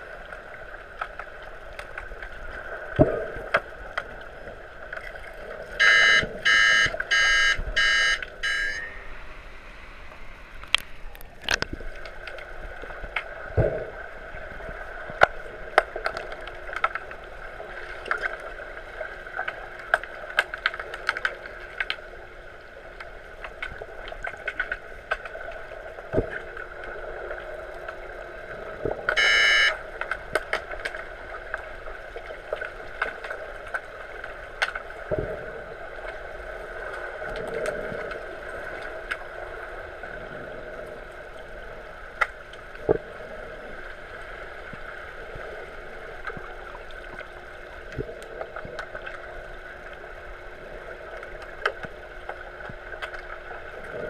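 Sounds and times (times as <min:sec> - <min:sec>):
underwater buzzer beeps: 0:05.8 - 0:09.2, 0:29.2 - 0:29.8.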